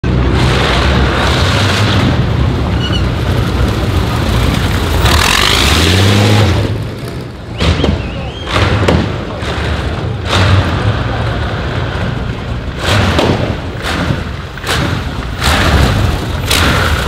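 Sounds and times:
loud car engine driving past: 0:00.1 - 0:17.0.

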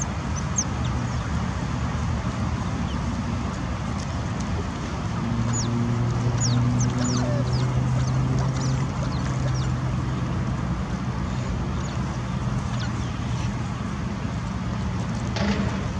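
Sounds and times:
otters chirping: 0:00.0 - 0:01.3, 0:05.4 - 0:10.2
low engine hum: 0:00.0 - 0:15.9
traffic rumble: 0:00.0 - 0:15.9.

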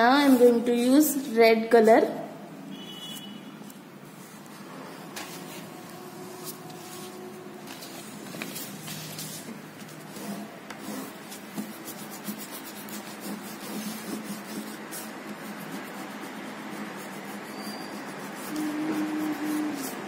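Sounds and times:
crayon rasping on paper: 0:00.2 - 0:00.7, 0:08.7 - 0:20.0.

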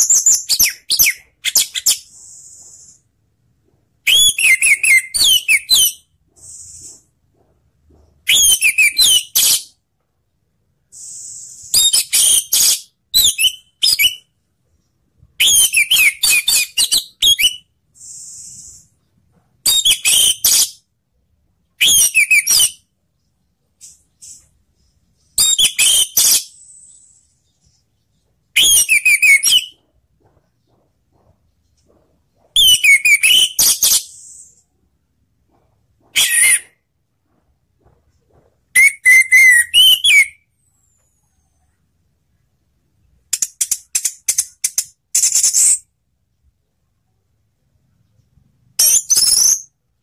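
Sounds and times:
thrush singing whistled phrases: 0:10.9 - 0:14.3, 0:15.4 - 0:18.9, 0:21.8 - 0:22.8, 0:25.4 - 0:27.3, 0:28.6 - 0:29.8, 0:32.6 - 0:34.6, 0:38.8 - 0:40.5, 0:48.8 - 0:49.7.

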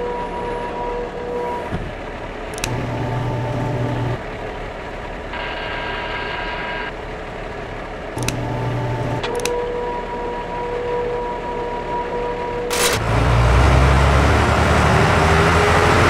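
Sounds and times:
sharp mechanism clicks: 0:02.5 - 0:02.9, 0:08.2 - 0:09.6, 0:12.7 - 0:13.0
motor whirring: 0:02.6 - 0:04.2, 0:08.2 - 0:09.5
high whine: 0:05.3 - 0:07.0.

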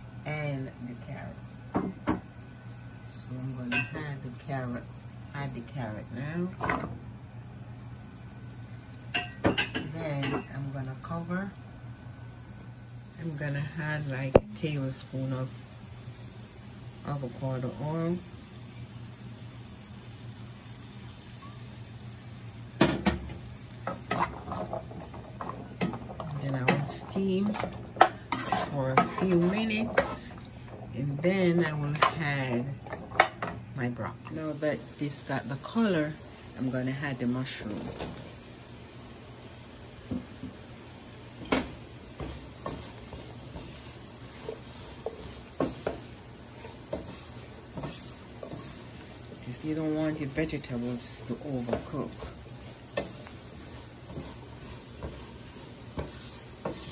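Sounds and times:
food sizzling in a pan: 0:00.0 - 0:56.9
spatula scraping a pan: 0:23.8 - 0:33.4, 0:41.3 - 0:56.9.

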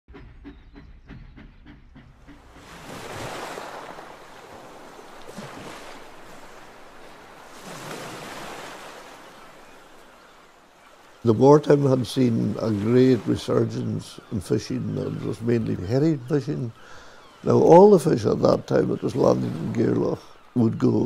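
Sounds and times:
low regular knocking: 0:00.1 - 0:02.9
wind: 0:00.1 - 0:21.0
sea waves washing on shore: 0:02.2 - 0:21.0.

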